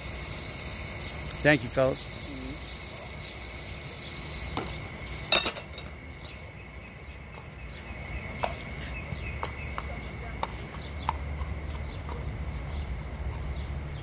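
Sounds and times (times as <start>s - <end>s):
steady hiss: 0.0s - 6.8s
horse hooves clopping: 5.8s - 14.0s.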